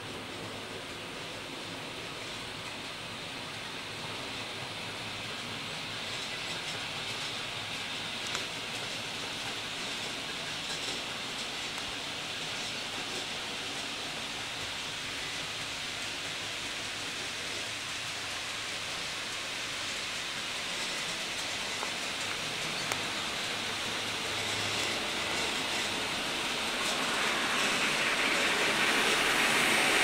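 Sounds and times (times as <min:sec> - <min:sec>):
model trains running on track: 0:00.0 - 0:30.0.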